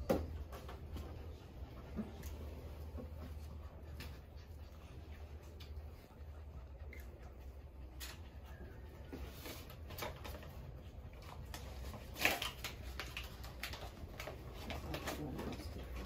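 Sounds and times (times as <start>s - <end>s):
low room hum: 0.0s - 16.0s.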